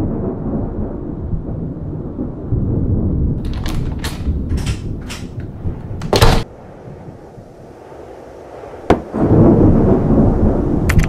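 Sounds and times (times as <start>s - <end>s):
low rumble of thunder: 0.0s - 11.0s
wooden door banging shut: 3.4s - 6.5s.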